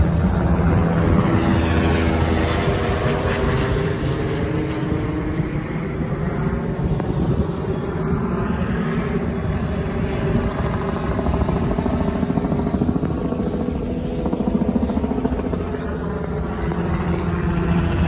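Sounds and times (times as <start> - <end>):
helicopter rotor chop: 0.0 - 18.0.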